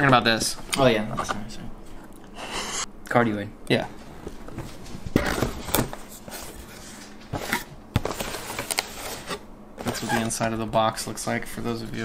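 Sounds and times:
cardboard rustling and scraping: 4.2s - 10.6s.

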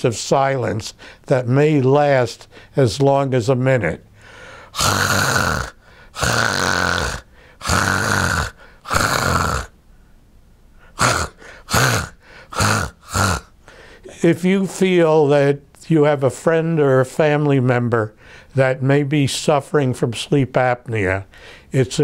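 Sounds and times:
harsh uneven snoring: 4.6s - 9.7s, 11.0s - 13.5s.

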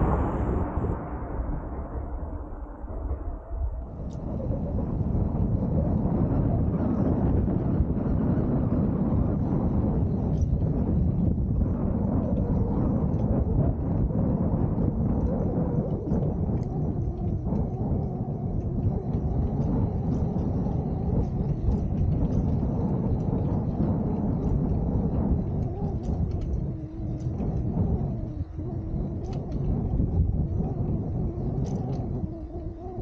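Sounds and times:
low outdoor rumble: 0.0s - 33.0s
faint ticks: 14.7s - 33.0s.

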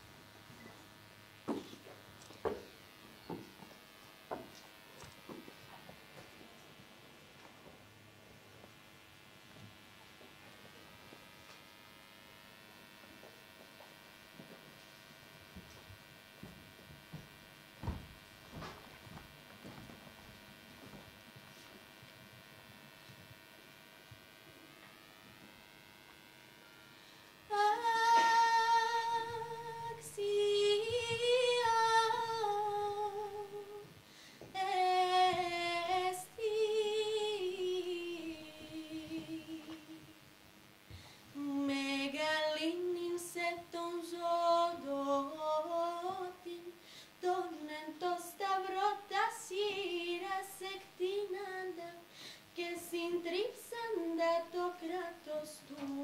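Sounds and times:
woman singing unaccompanied: 27.4s - 40.2s, 41.4s - 56.0s.

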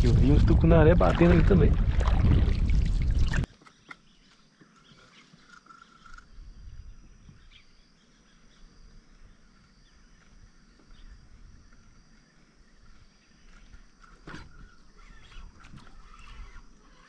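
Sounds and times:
wind rushing on microphone: 0.0s - 3.5s
faint high insect hum: 3.4s - 17.0s
animal call: 14.1s - 17.0s.

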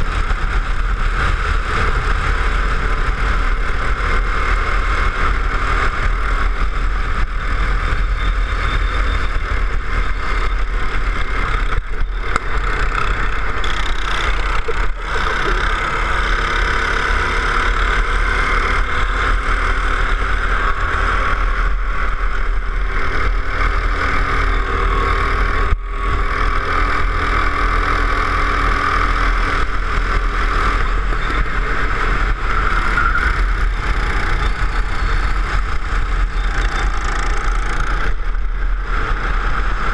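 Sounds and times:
go-kart engine droning: 0.0s - 39.9s.

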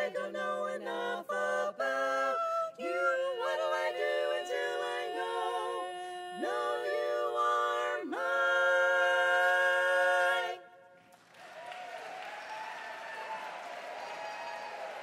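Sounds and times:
women singing a cappella harmony: 0.0s - 10.8s
applause: 11.0s - 15.0s.

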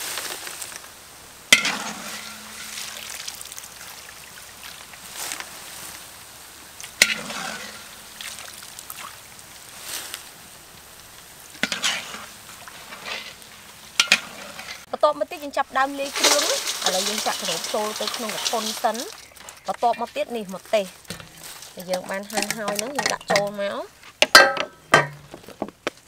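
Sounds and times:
deep-frying oil sizzling and crackling: 0.0s - 25.3s
sharp ringing knocks: 24.2s - 25.4s.

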